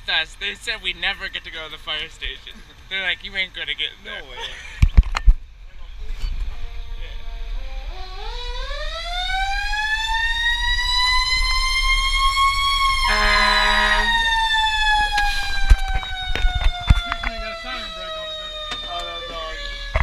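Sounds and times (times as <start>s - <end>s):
fire truck siren: 7.2s - 20.0s
horn blast: 12.8s - 15.9s.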